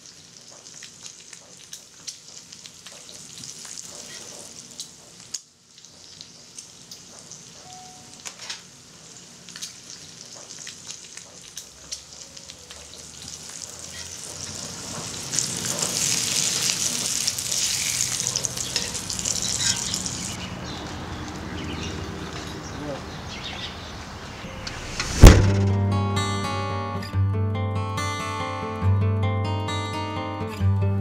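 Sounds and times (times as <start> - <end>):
bacon sizzling in a skillet: 0.0 - 20.4.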